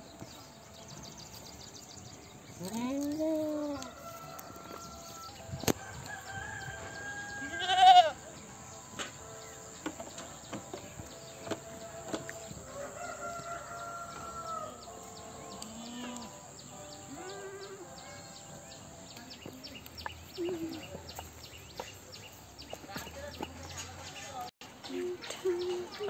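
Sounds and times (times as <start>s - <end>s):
goats bleating: 7.4s - 8.2s.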